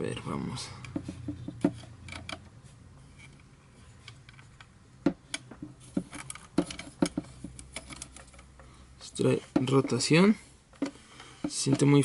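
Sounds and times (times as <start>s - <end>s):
tripod head clicks and knocks: 0.8s - 2.5s, 4.1s - 8.5s.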